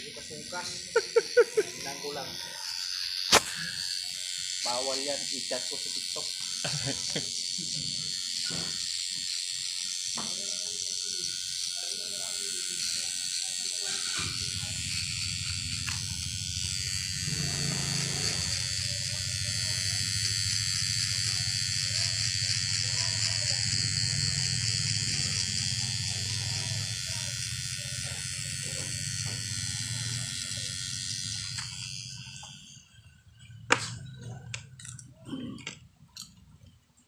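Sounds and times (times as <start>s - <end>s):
hair trimmer buzzing: 0.0s - 34.7s
sharp click: 3.3s - 3.6s.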